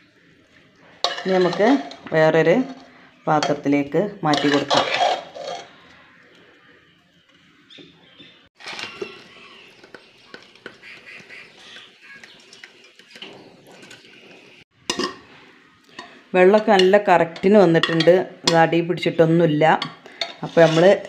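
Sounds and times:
spoon scraping rice in pot: 4.3 - 5.8, 19.8 - 21.0.

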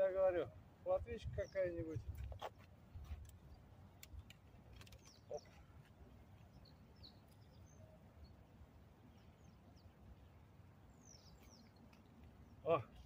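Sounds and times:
faint bird chirps: 6.4 - 13.0.

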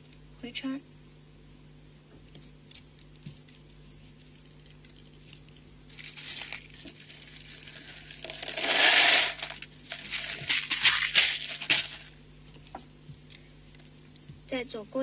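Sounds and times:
fishing line and beads rustling: 5.9 - 12.1
line pulled through beads: 8.2 - 9.6.

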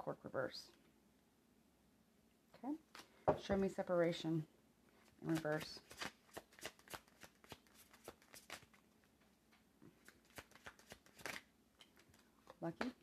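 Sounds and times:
cards being shuffled: 5.0 - 13.0.

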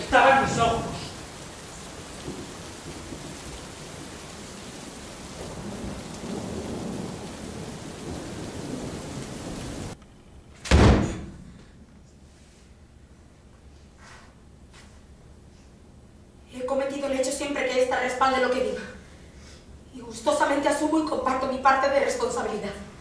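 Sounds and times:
rain hissing: 0.0 - 10.0.

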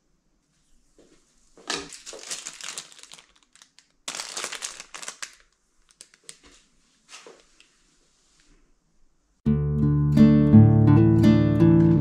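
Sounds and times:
plastic bags crinkling: 1.6 - 7.4.

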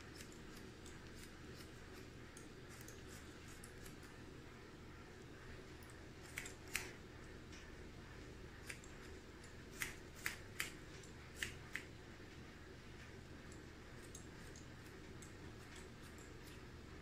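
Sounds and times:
scissors snipping hair: 0.0 - 4.2, 5.9 - 7.0, 8.6 - 11.9, 13.5 - 16.7
low steady hum: 0.0 - 17.0.

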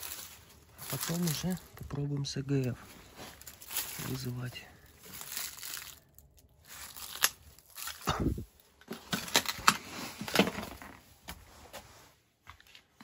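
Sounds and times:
footsteps crunching over rubble: 0.0 - 6.1.

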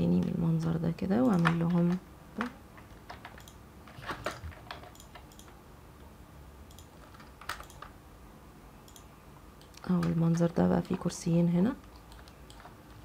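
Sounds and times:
keyboard and mouse clicks: 1.2 - 5.6, 6.7 - 8.0, 8.8 - 11.2, 11.8 - 13.0.

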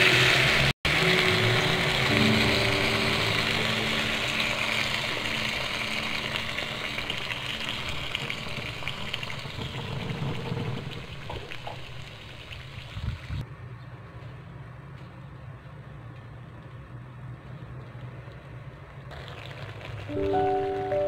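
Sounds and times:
water pouring into frying pan: 0.0 - 13.1, 19.1 - 21.0.

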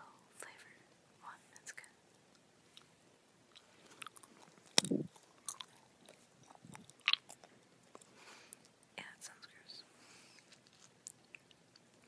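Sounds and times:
wet chewing mouth sounds: 3.5 - 8.7.

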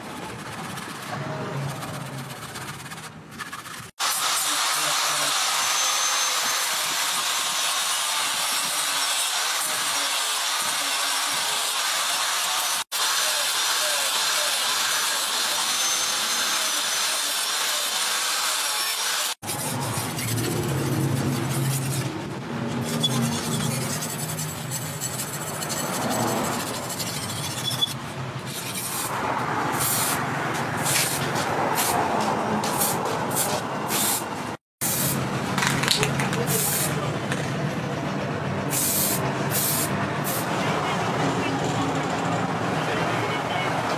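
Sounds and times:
uneven rubbing: 0.0 - 4.0
angle grinder sanding steel: 3.7 - 32.0.

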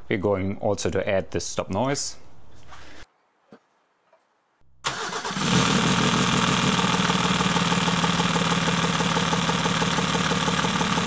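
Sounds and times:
diesel engine idling clatter: 5.9 - 11.0.

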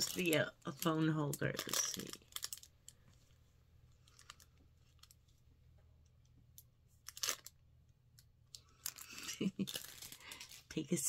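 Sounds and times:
plastic packaging crinkling: 0.0 - 3.1, 4.0 - 5.3, 7.0 - 7.6, 8.6 - 11.0.

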